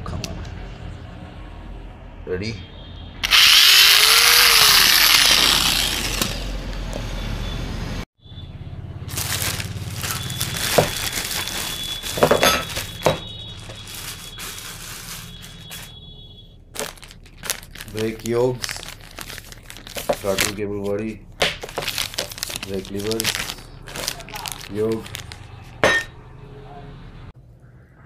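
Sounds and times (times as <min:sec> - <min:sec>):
electric drill running: 0:03.2 - 0:06.8
plastic bags crinkling: 0:09.0 - 0:16.0, 0:16.7 - 0:26.1.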